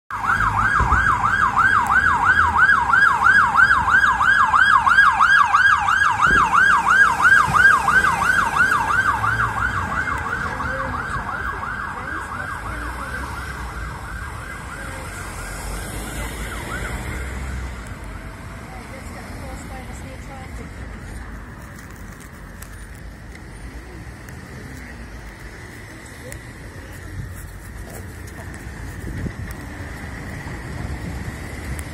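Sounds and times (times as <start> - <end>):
police siren yelping: 0.1 - 17.9.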